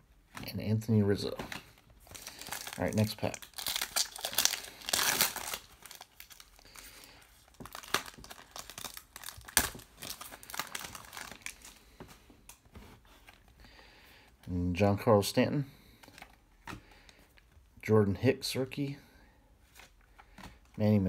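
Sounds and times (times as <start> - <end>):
cards rustling and clicking: 0.2 - 13.6
foil wrapper crinkling and tearing: 2.0 - 11.8.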